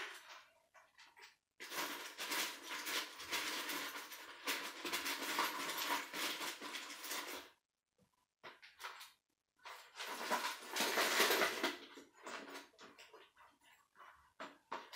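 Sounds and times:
plastic toy pieces clattering: 0:09.9 - 0:12.7.

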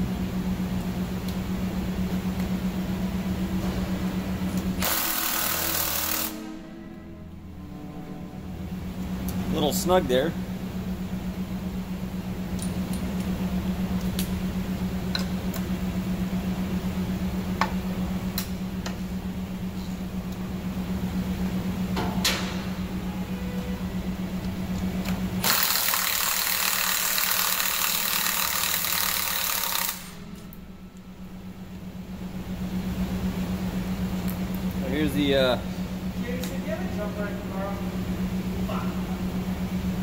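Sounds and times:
steady pulsing hum: 0:00.0 - 0:40.0
hand ratchet clicking: 0:25.4 - 0:30.2.

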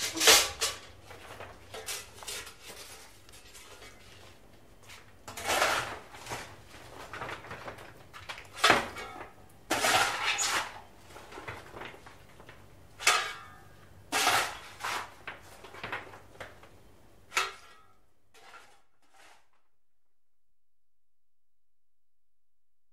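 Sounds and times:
shovel scraping coal: 0:00.0 - 0:07.2, 0:08.6 - 0:11.9, 0:13.0 - 0:15.8, 0:17.3 - 0:19.6.

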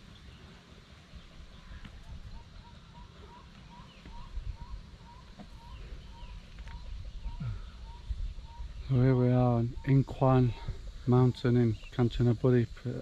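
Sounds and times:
animal calling: 0:01.5 - 0:11.0
wind rumble: 0:04.1 - 0:11.3.

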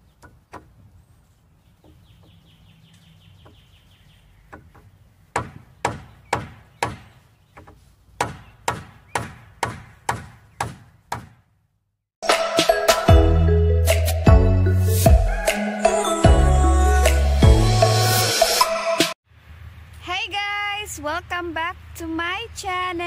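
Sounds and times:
hammer striking wooden beam: 0:04.5 - 0:11.5.

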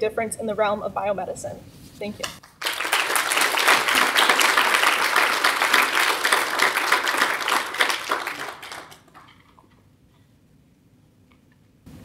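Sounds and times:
audience applauding: 0:02.4 - 0:09.7.

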